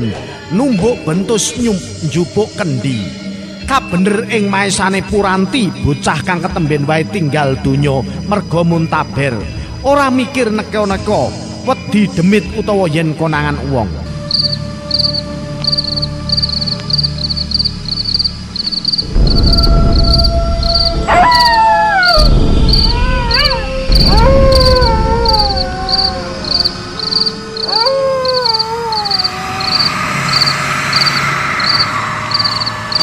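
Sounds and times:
crickets chirping: 0:00.0 - 0:33.0
wind hiss: 0:14.4 - 0:33.0
falling wavering howls: 0:14.7 - 0:33.0
deep rumble: 0:15.8 - 0:33.0.

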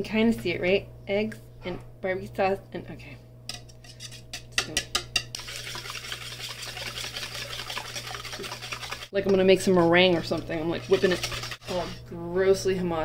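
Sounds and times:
whisk beating in metal bowl: 0:03.5 - 0:12.0.

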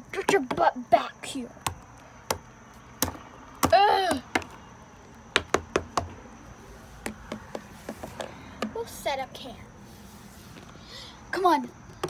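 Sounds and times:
plastic toys tapping on wood: 0:03.0 - 0:04.6, 0:05.3 - 0:06.2, 0:07.0 - 0:08.8.

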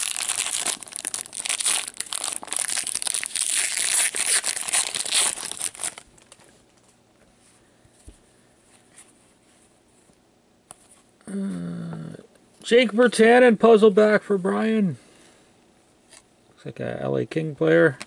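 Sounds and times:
wrapper crinkling: 0:00.0 - 0:06.5.

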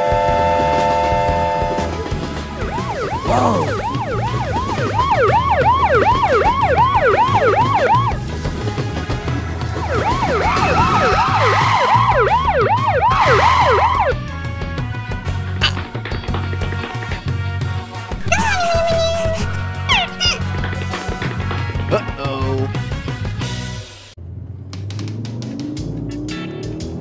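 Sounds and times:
background music: 0:00.0 - 0:24.2
cartoon police siren wail: 0:02.6 - 0:08.2, 0:09.8 - 0:14.2, 0:18.2 - 0:20.4.

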